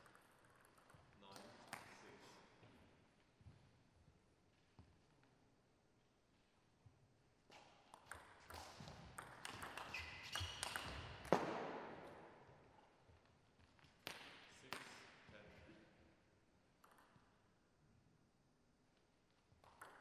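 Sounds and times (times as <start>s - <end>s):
table tennis ball clicks: 7.9s - 11.4s, 19.6s - 20.0s
shoe squeaks on floor: 9.5s - 11.2s.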